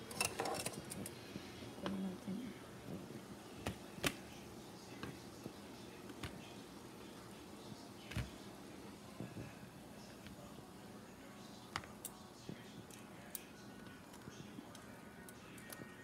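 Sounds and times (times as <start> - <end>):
metal tongs clicking on pot: 0.0 - 1.0.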